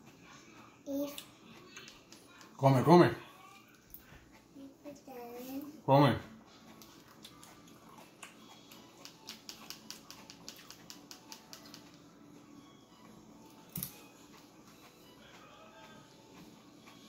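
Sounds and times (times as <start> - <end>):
fork clicking in plastic cup: 9.0 - 12.0.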